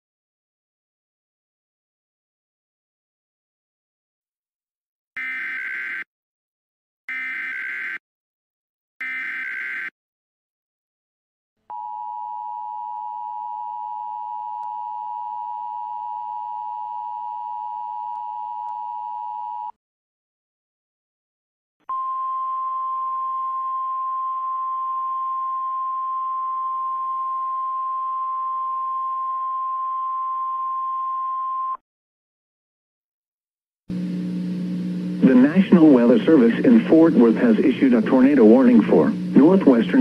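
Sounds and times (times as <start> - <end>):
dual-tone alarm: 5.2 - 6.1, 7.1 - 8.0, 9.0 - 9.9
steady single alarm tone: 9.0 - 9.9.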